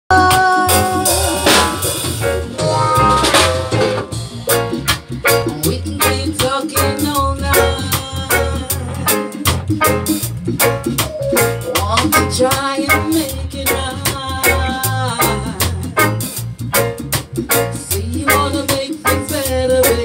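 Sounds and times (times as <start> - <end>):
live reggae band playing: 0.1 - 20.0.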